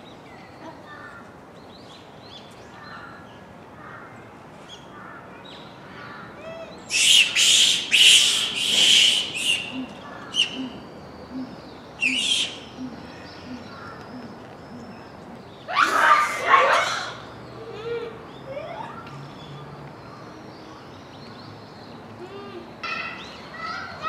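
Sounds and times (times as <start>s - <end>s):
monkeys calling: 6.4s - 19.0s.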